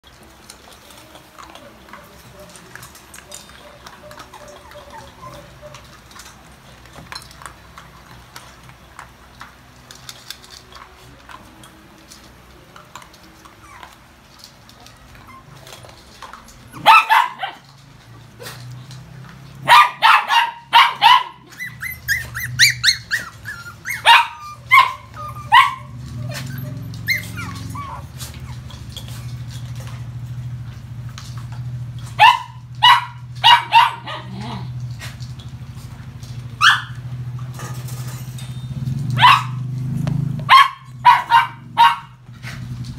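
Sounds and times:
dogs eating kibble from steel bowl: 0.0s - 42.9s
small dogs barking: 1.4s - 6.5s, 15.2s - 17.7s, 19.5s - 29.3s, 32.0s - 35.2s, 36.6s - 37.1s, 39.1s - 39.8s, 40.4s - 42.6s.

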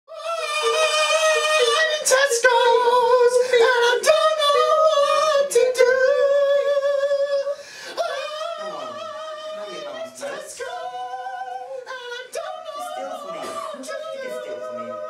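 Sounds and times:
person singing unaccompanied: 0.1s - 15.0s.

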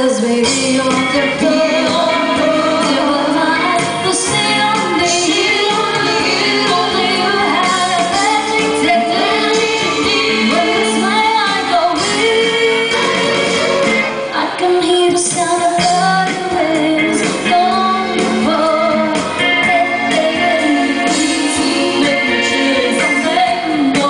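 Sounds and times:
instrumental backing music: 0.0s - 24.0s
female vocal trio singing: 0.3s - 13.7s.

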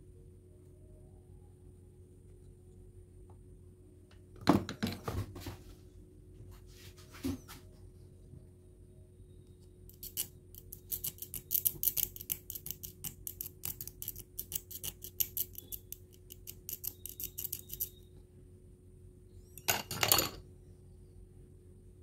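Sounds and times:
metal pick scraping circuit board: 9.9s - 18.0s.

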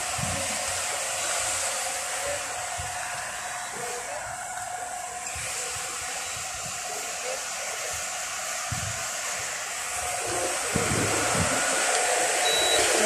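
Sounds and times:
air blowing hiss: 0.0s - 13.0s.

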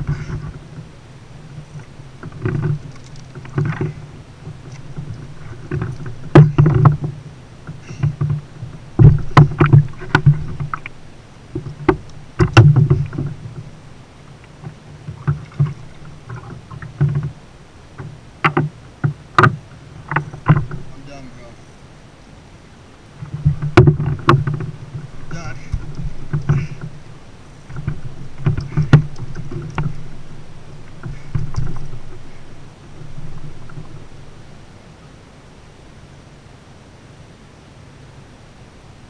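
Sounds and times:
fish thumping on kayak hull: 1.5s - 13.7s, 23.2s - 34.3s.

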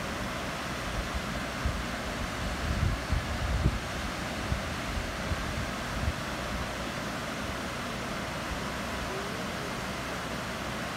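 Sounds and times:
wind bumps on microphone: 1.6s - 6.2s.

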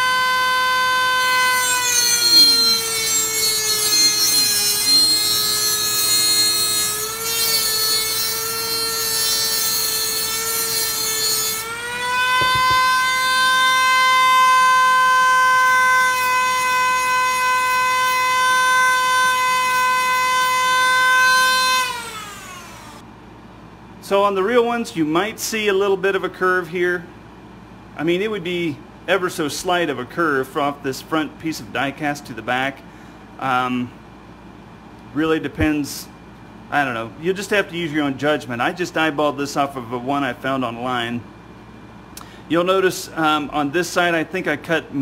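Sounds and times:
rotary tool whining: 0.0s - 23.0s
metal grinding hiss: 1.2s - 11.7s.

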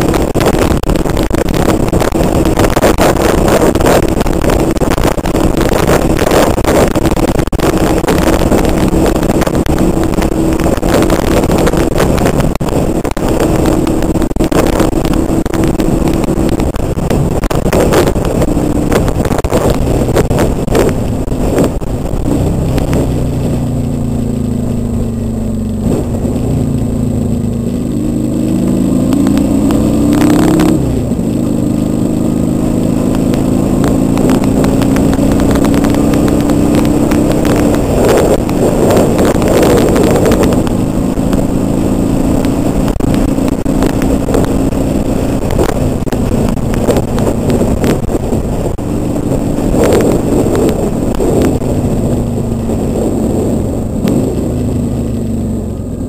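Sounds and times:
motorcycle engine revving: 0.0s - 56.0s
wind rushing over microphone: 0.0s - 56.0s.

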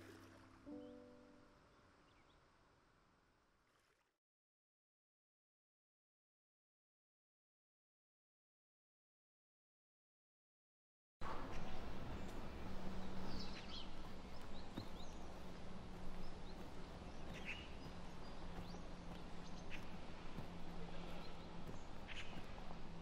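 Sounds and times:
steady low hum: 11.2s - 23.0s.

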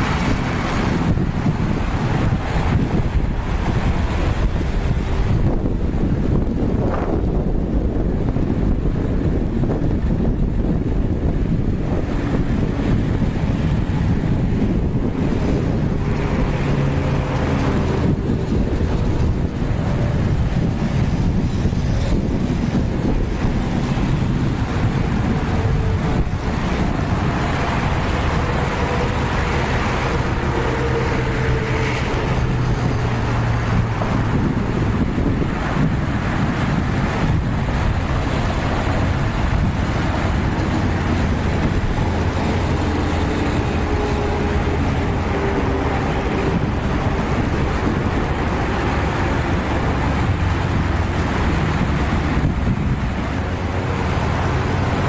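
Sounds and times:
road rumble: 0.0s - 55.0s
vehicle engine hum: 0.0s - 55.0s.

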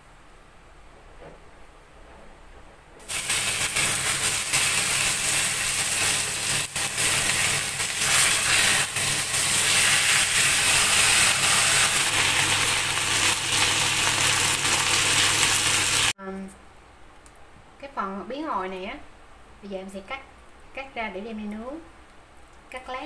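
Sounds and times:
fish frying in oil: 3.0s - 16.2s.

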